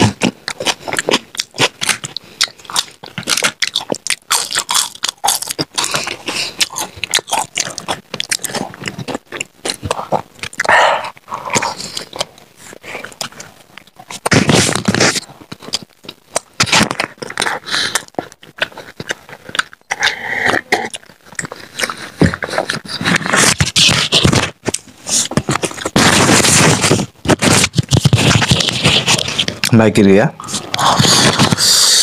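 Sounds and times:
wet chewing and crunching: 0:00.0 - 0:29.7, 0:30.4 - 0:32.0.

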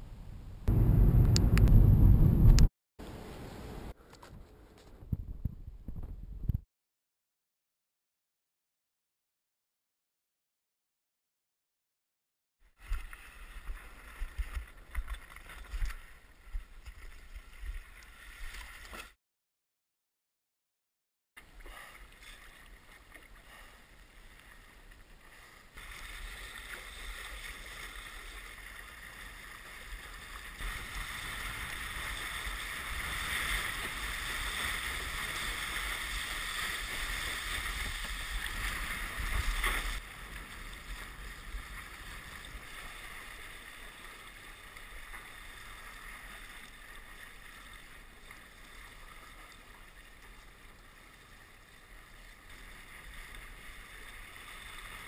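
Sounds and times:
wind buffeting camera: 0:00.0 - 0:06.6
water rushing against board: 0:12.8 - 0:19.2, 0:21.4 - 0:51.2.

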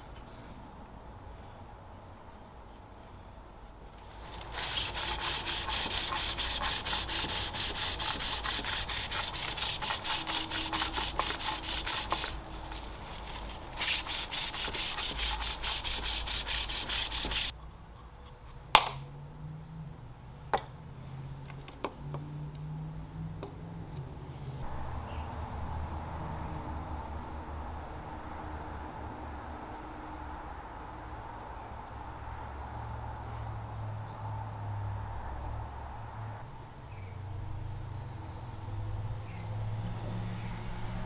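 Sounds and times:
rhythmic rubbing hiss on wood: 0:04.0 - 0:17.5.

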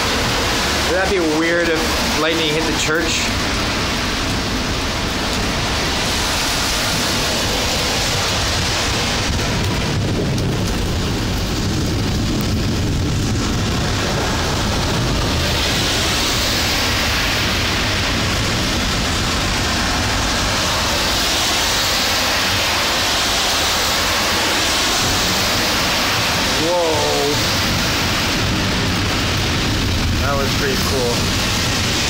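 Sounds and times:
heavy rain hissing: 0:00.0 - 0:32.0
low rumble: 0:00.0 - 0:32.0.

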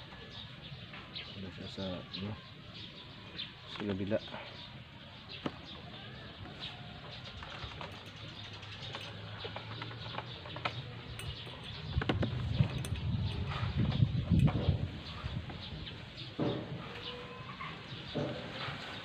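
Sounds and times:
birds calling: 0:00.0 - 0:19.0
low thumps: 0:11.2 - 0:16.8.

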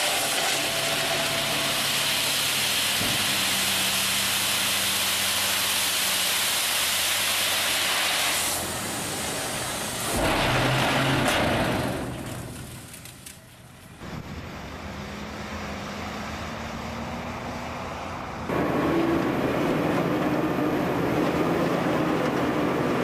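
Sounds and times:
gravel sliding out: 0:05.8 - 0:13.4
diesel truck engine running: 0:14.0 - 0:23.0.

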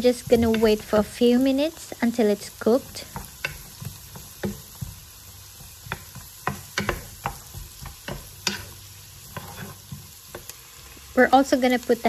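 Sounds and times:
vegetables sizzling: 0:00.0 - 0:12.0
wooden spoon tapping a pan: 0:02.8 - 0:10.5.

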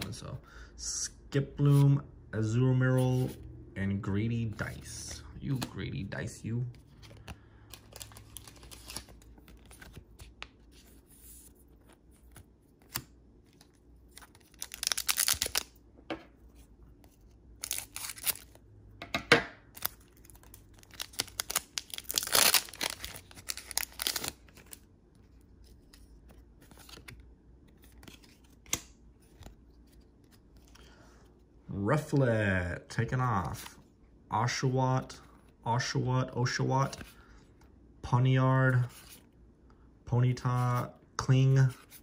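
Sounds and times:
foil wrapper crinkling and tearing: 0:14.3 - 0:15.7, 0:19.8 - 0:24.8.

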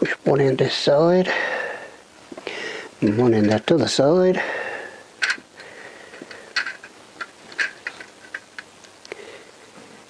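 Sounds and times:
metal clicks and taps: 0:05.2 - 0:05.4.

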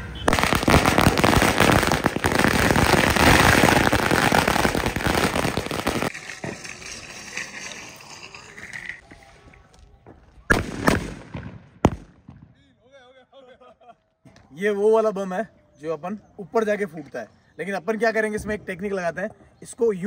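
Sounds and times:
firecrackers banging: 0:00.0 - 0:09.0, 0:10.5 - 0:12.6.

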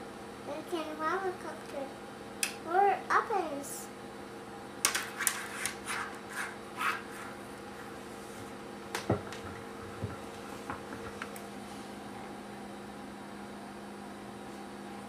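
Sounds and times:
steady low hum: 0:00.0 - 0:15.0
drawing tool scratching on paper: 0:05.1 - 0:07.4.

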